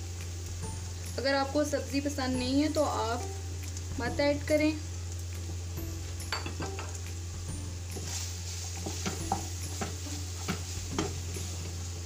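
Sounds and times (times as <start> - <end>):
light sizzle of frying: 0.0 - 12.0
wooden spatula scraping a pan: 8.0 - 11.8.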